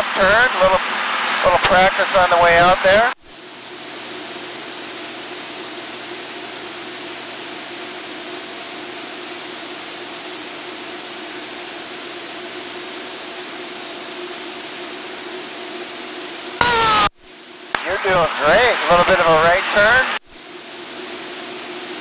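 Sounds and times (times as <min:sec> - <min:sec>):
thin high whine: 0:03.2 - 0:22.0.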